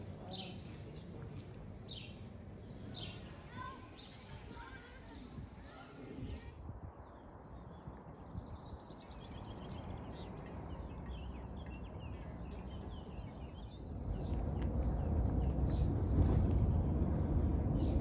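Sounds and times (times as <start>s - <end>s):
small birds chirping: 0.1s - 18.0s
low outdoor rumble: 13.8s - 18.0s
louder low rumble: 13.9s - 18.0s.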